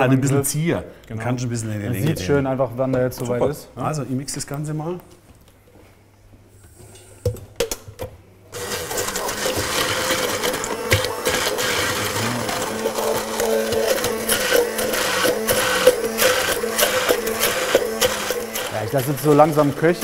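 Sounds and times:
electric hand blender running: 0:08.6 - 0:20.0.

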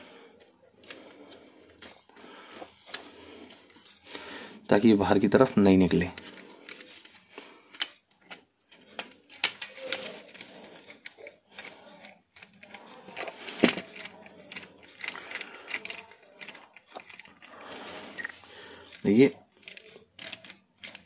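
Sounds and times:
hard plastic parts clicking and knocking: 0:07.7 - 0:17.6.

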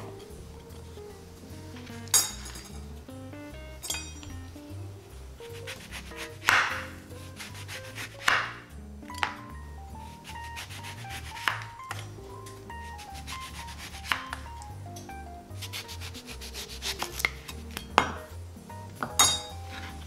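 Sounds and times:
knife sawing through orange: 0:05.6 - 0:08.4, 0:10.2 - 0:11.6, 0:12.8 - 0:14.4, 0:15.6 - 0:17.5.

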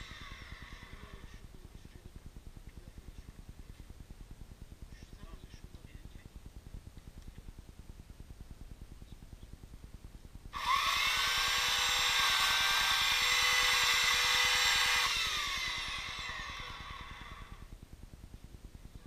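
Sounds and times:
electric chainsaw whining: 0:00.0 - 0:01.1, 0:10.6 - 0:17.7.

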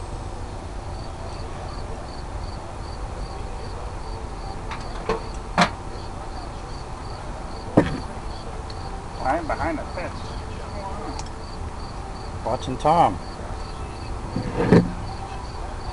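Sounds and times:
cricket chirping: 0:00.8 - 0:03.4, 0:04.0 - 0:12.4, 0:13.2 - 0:15.9
sharp knocks: 0:07.8 - 0:08.1, 0:14.4 - 0:15.0.

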